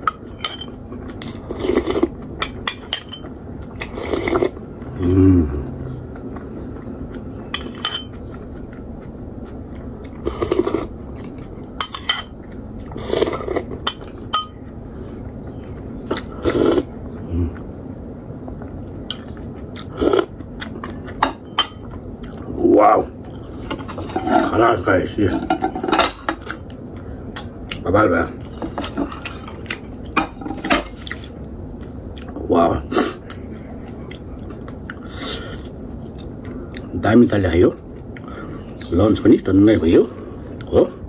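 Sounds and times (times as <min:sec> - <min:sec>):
person chewing and slurping: 0:00.9 - 0:02.6, 0:03.3 - 0:17.8, 0:19.2 - 0:21.2, 0:33.0 - 0:36.9.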